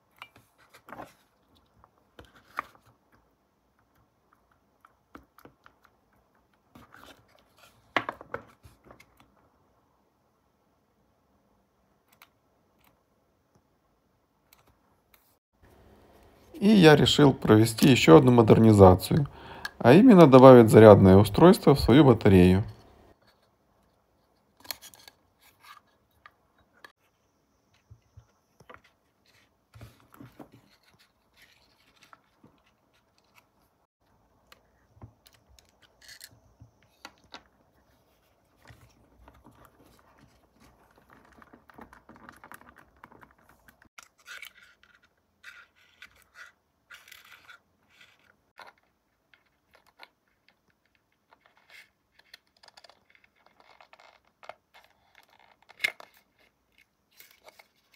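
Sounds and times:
pencil scratching plastic: 0:42.4 - 0:48.4.

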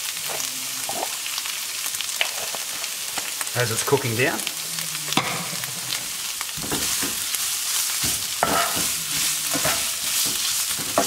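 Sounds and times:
onions sizzling in oil: 0:00.0 - 0:11.0
spoon scraping frying pan: 0:05.1 - 0:11.0.

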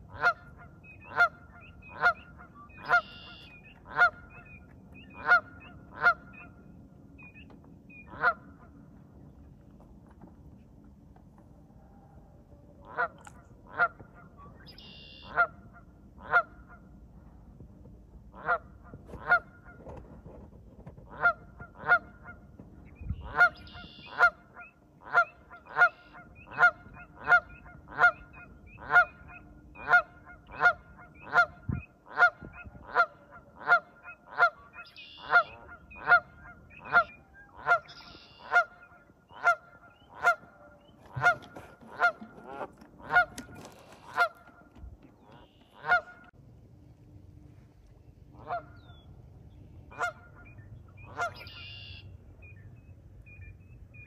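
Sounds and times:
geese honking: 0:00.0 - 0:09.0, 0:12.8 - 0:17.0, 0:18.3 - 0:20.0, 0:21.0 - 0:46.4, 0:48.3 - 0:49.1, 0:49.9 - 0:52.1.

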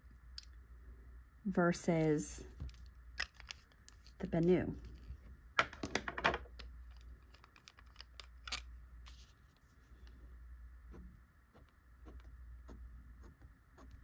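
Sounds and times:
pen nib scratching on paper: 0:10.9 - 0:14.0.

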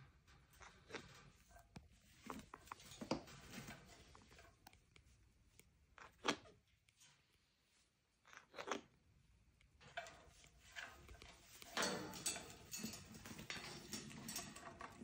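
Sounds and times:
rustling and scuffling on perch: 0:00.0 - 0:04.6, 0:09.9 - 0:15.0.

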